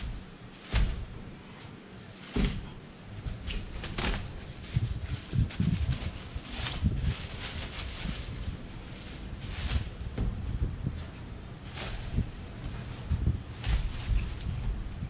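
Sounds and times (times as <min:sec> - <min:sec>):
dull thumps: 0:00.0 - 0:01.4, 0:02.2 - 0:06.0, 0:09.7 - 0:15.0
plastic bag crinkling: 0:02.0 - 0:10.2.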